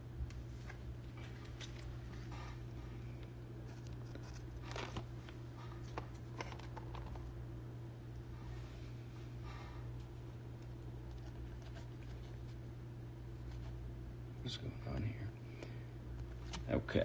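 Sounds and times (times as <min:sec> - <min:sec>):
steady low hum: 0:00.0 - 0:17.0
plastic rustling: 0:03.6 - 0:07.3.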